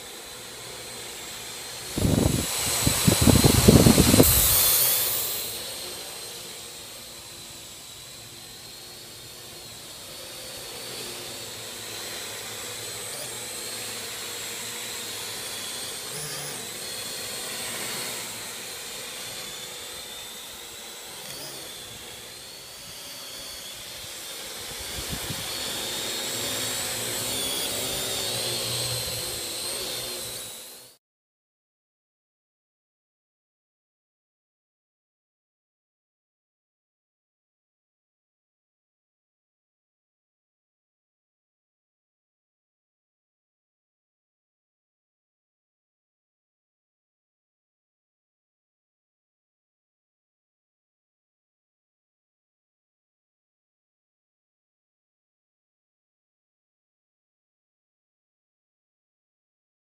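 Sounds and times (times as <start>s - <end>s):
drone propellers whining: 0.0s - 31.0s.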